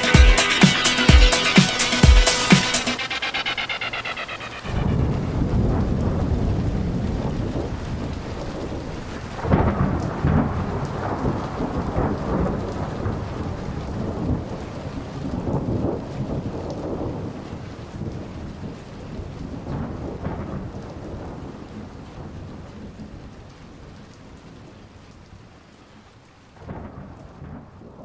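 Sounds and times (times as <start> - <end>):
electronic music: 0.0 - 5.6.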